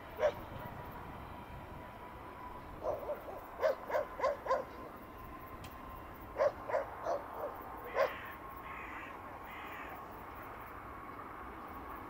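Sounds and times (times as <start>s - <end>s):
short animal calls: 7.9s - 9.9s.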